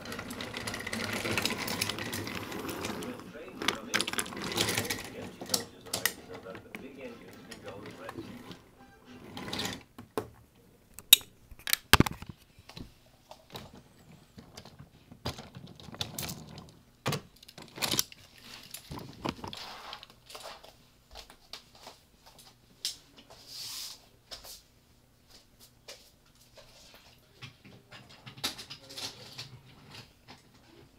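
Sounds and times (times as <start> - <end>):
wooden toy trains clattering: 0.0 - 8.6, 13.6 - 16.8, 27.4 - 30.1.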